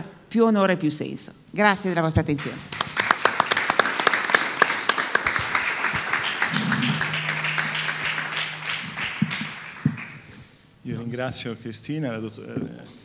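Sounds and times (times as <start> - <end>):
audience applauding: 2.7 - 10.3
low steady hum: 5.0 - 10.5.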